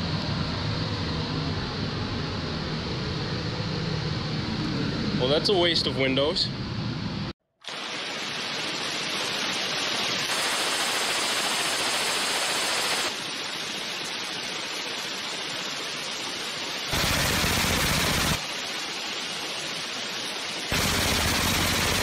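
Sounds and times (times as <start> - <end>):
suppressed machine gun bursts: 16.9 - 18.4, 20.7 - 22.0.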